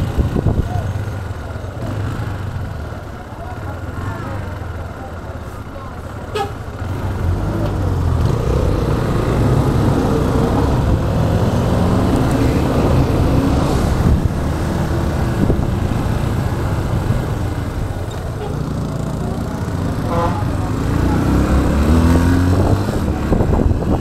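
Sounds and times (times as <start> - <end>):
road noise: 0.0 - 24.0
motorcycle engine running: 14.0 - 24.0.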